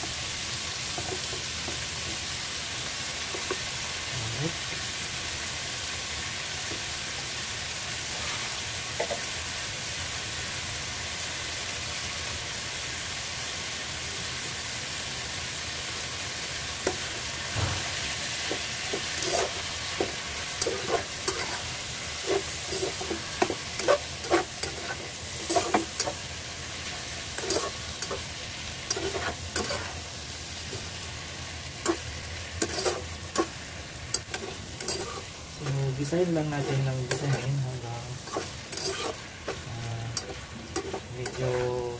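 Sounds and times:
meat sizzling in a pan: 0.0s - 41.9s
utensil scraping a pan: 16.9s - 26.2s, 26.8s - 28.3s, 28.9s - 30.1s, 31.8s - 41.9s.

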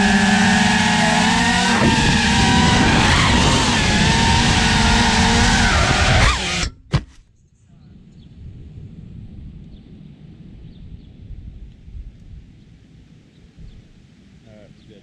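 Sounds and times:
quadcopter motors whining: 0.0s - 6.7s.

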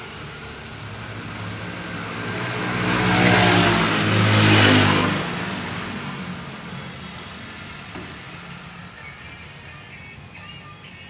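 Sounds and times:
vehicle passing close by: 0.0s - 8.9s.

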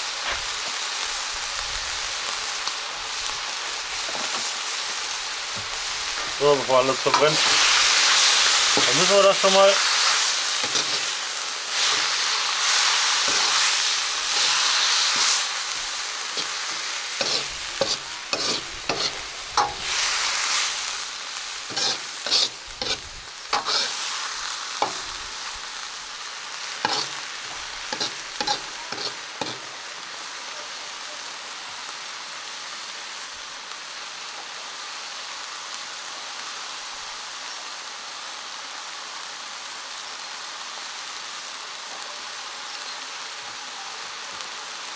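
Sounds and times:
food sizzling in a wok: 0.0s - 44.9s
ladle scraping a wok: 9.8s - 20.8s, 21.6s - 25.1s, 26.8s - 27.3s, 27.9s - 29.6s.

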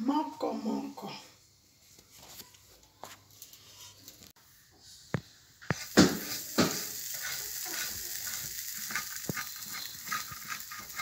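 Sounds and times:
waffle iron sizzling: 3.1s - 11.0s.

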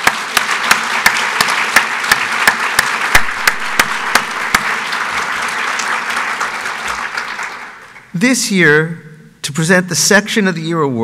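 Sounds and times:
audience applause: 0.0s - 8.1s
loud distinct claps: 0.0s - 8.1s.

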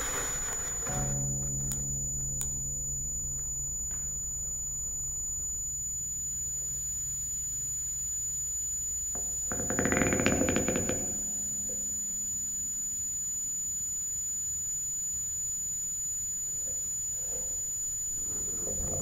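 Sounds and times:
low rumble: 0.0s - 8.1s
low drone of held tones: 0.0s - 14.3s
high electronic tone: 0.6s - 9.0s.

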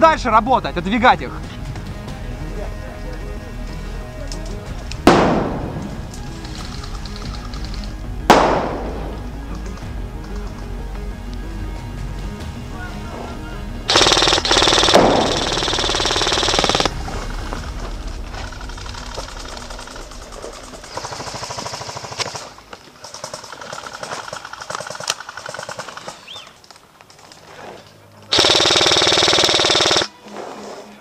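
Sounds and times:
airsoft rifle full-auto bursts: 13.9s - 16.9s, 20.8s - 26.4s, 28.3s - 30.1s.

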